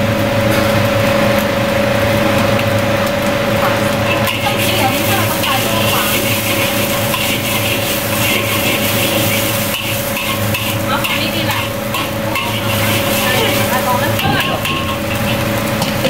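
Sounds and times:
rice sizzling: 0.0s - 16.0s
steady hum: 0.0s - 16.0s
spatula scraping a wok: 4.0s - 16.0s.

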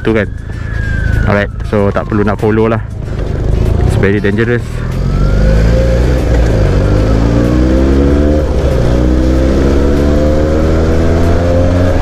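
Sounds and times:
gear upshift: 3.0s - 12.0s
motorcycle engine accelerating: 3.2s - 12.0s.

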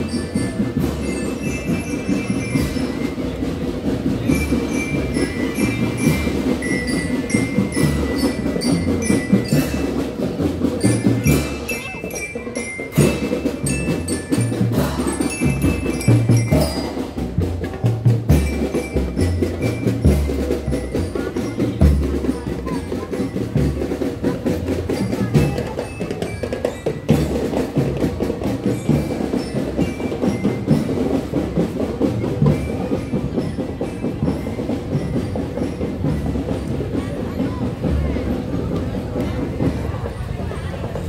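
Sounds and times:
bell lyre melody: 0.0s - 37.6s
bass and snare drums: 0.0s - 41.0s.

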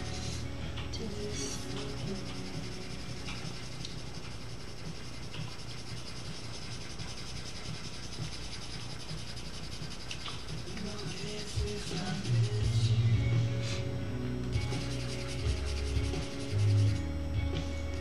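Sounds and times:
charcoal pencil scratching on paper: 1.8s - 12.9s, 14.6s - 17.0s.

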